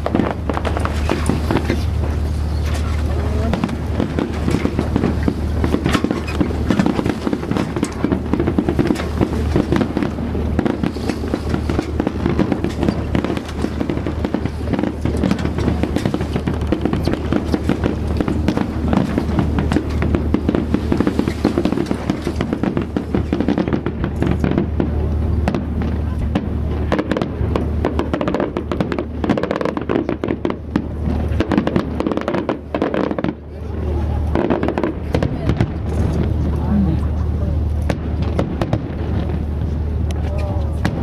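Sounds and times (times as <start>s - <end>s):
fireworks bangs and crackles: 0.0s - 41.0s
steady low hum: 0.0s - 41.0s.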